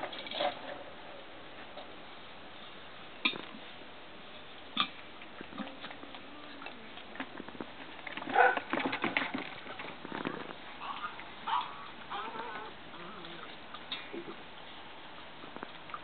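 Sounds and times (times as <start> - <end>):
puppies scuffling and pattering: 5.2 - 16.0.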